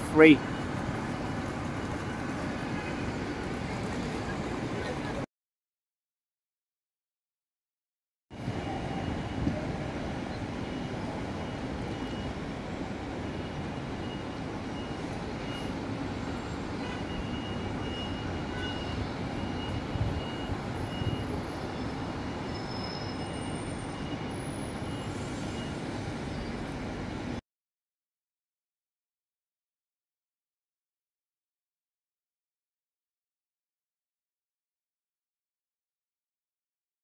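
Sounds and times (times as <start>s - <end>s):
low rumble of traffic: 0.0s - 5.3s, 8.3s - 27.4s.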